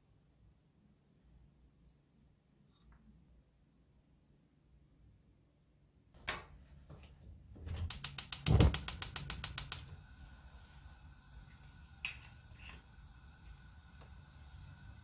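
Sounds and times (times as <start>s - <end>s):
stove igniter clicks: 7.9s - 9.9s
gas burner hiss: 7.9s - 15.0s
knock: 8.4s - 9.0s.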